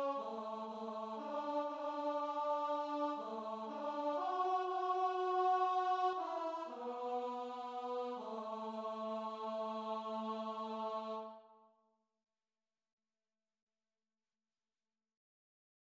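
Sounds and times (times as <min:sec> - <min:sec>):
choir-like vocal melody: 0:00.0 - 0:11.7.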